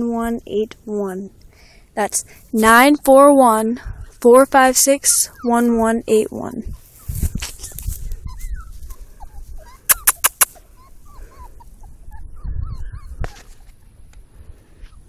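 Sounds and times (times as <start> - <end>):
sharp clicks: 9.9 - 10.6.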